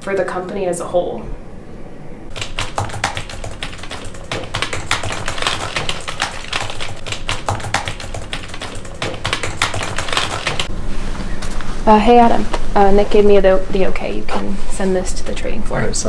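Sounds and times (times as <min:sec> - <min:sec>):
typing on computer keyboard: 0:02.3 - 0:10.7.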